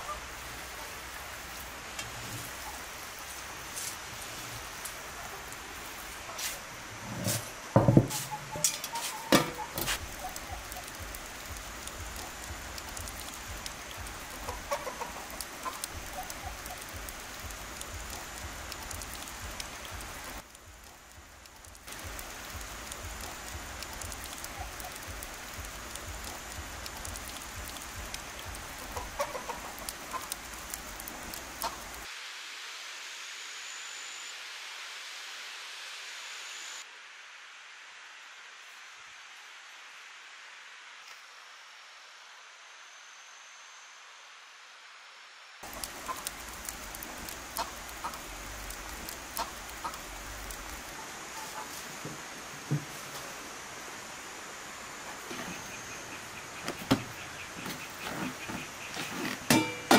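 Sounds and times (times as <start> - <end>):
outdoor background hiss: 0.0 - 59.9
hens clucking: 14.3 - 16.8, 28.8 - 30.4, 49.4 - 50.0.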